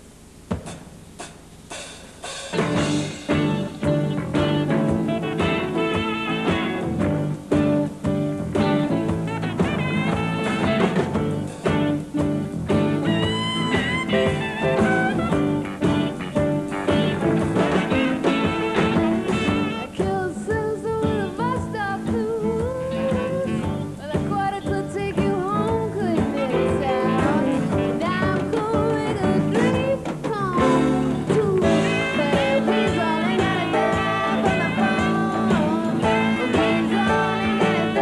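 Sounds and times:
drums: 0.0 - 38.0
guitars: 2.5 - 38.0
electric bass: 2.6 - 38.0
tenor saxophone melody: 3.3 - 7.5, 8.6 - 20.1, 26.4 - 28.4, 31.6 - 38.0
woman singing: 19.6 - 38.0.

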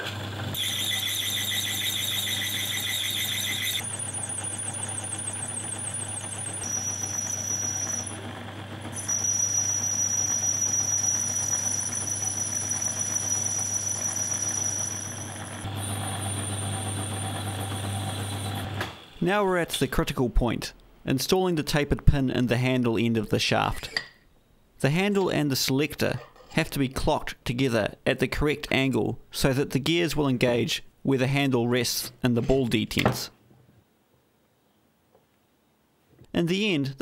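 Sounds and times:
high-pitched cutting squeal: 0.6 - 8.3, 8.9 - 20.1
lathe motor humming: 0.6 - 19.2.

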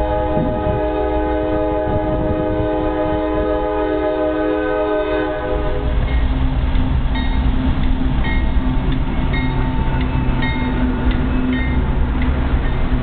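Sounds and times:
train horn chord: 0.0 - 6.2
locomotive engines rumbling: 0.0 - 13.0
wheels on rails: 0.0 - 13.0
crossing bell ringing: 6.0 - 13.0.

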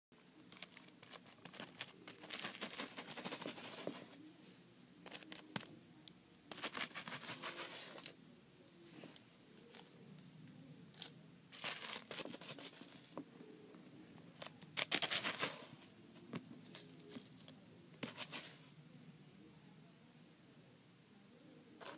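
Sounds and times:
paper bag crinkling: 0.4 - 4.2, 10.9 - 13.2.

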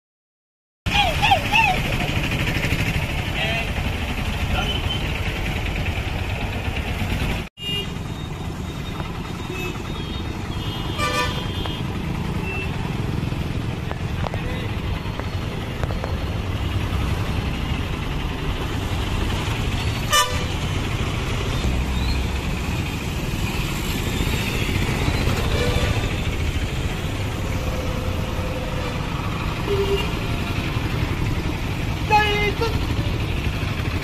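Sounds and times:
small engines running: 0.9 - 34.0
short horn toots: 10.6 - 11.8.

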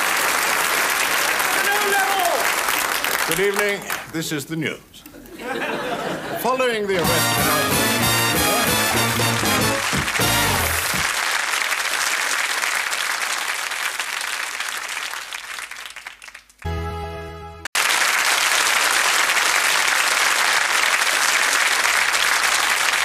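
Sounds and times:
audience applause: 0.0 - 4.0, 7.0 - 16.7, 17.8 - 23.0
short musical chord: 7.0 - 11.0, 16.7 - 17.7.

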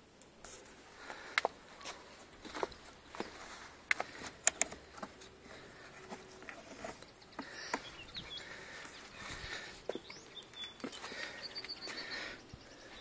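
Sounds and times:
hands handling wooden roof: 1.0 - 12.2
bird chirping: 5.8 - 13.0.

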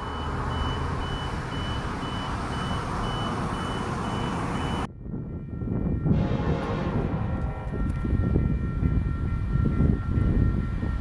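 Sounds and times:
crossing warning bell beeping: 0.0 - 11.0
steady rumble: 4.5 - 11.0.

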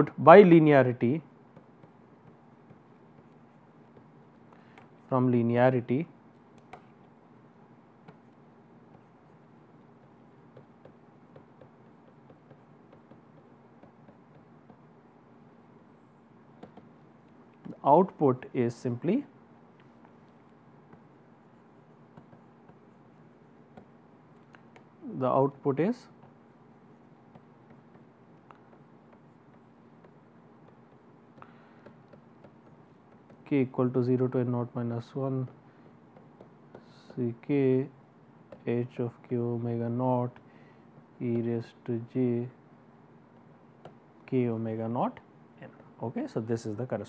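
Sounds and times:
low steady hum: 0.0 - 47.0
stylus tapping on tablet screen: 1.5 - 5.0, 6.4 - 7.1, 8.0 - 9.2, 9.8 - 14.9, 16.6 - 17.8, 21.8 - 23.0, 23.6 - 25.0, 26.2 - 33.4, 35.4 - 37.3, 38.5 - 38.7, 43.8 - 44.0.

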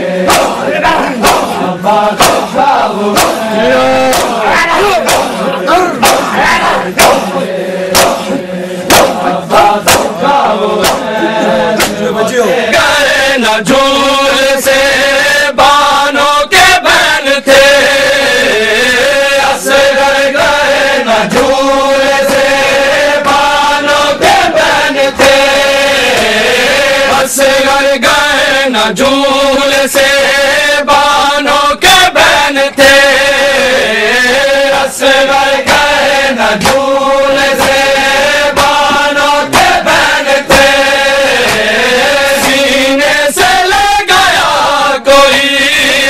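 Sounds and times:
men chanting: 0.0 - 46.0
hands slapping chests: 0.2 - 12.2, 21.2 - 27.2, 34.7 - 43.7.

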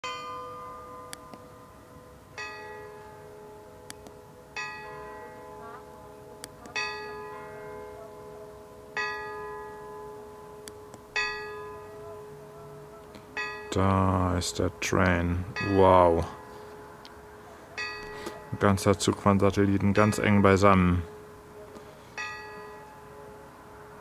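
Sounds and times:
bell tolling: 4.6 - 12.5, 13.3 - 14.6, 15.4 - 24.0.

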